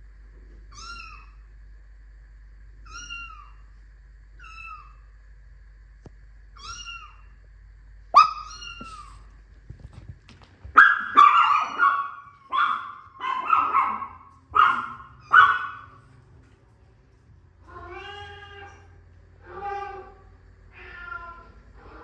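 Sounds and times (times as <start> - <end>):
dog barking: 8.2 - 8.5, 10.7 - 16.0.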